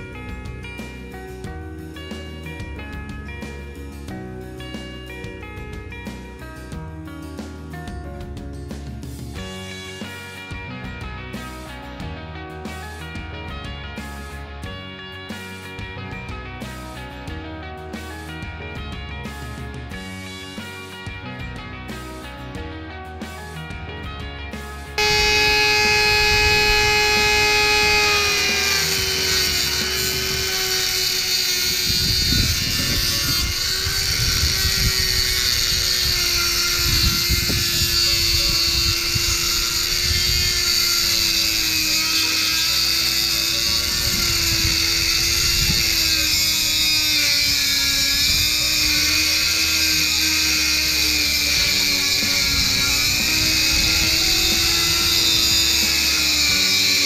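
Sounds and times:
rotary tool cutting metal: 0:25.0 - 0:57.0.

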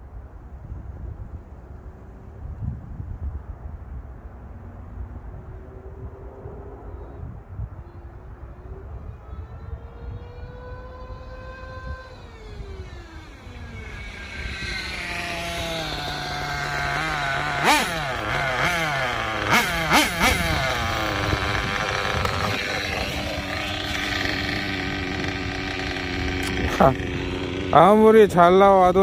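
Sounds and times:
small engine at high revs: 0:09.2 - 0:29.0.

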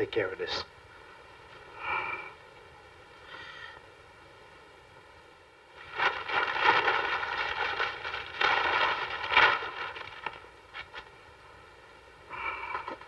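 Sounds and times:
newspaper rustling and crackling: 0:05.8 - 0:11.2.

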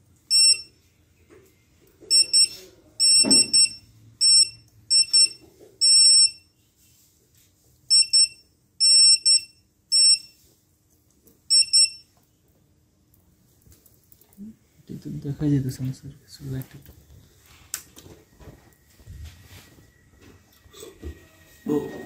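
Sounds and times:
high-pitched electronic beeps: 0:02.1 - 0:06.4.

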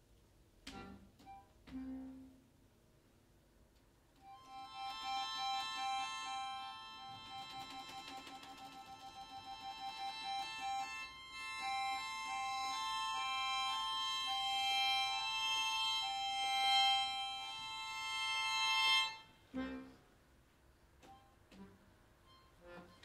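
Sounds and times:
accordion playing: 0:04.2 - 0:20.1, 0:21.0 - 0:23.0.

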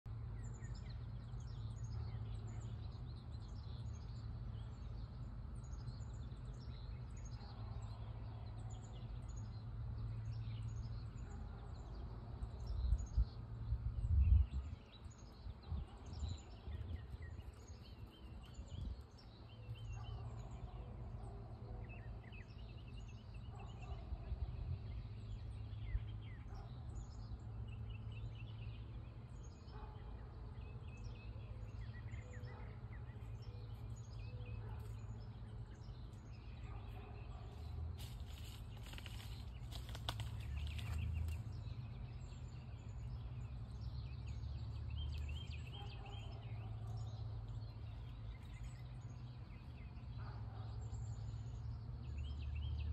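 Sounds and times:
small birds chirping: 0:00.0 - 0:52.9.

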